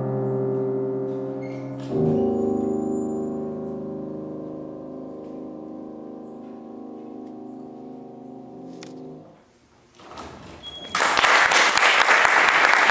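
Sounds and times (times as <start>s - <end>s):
piano chord ringing: 0.0s - 9.4s
audience applauding: 10.9s - 12.9s.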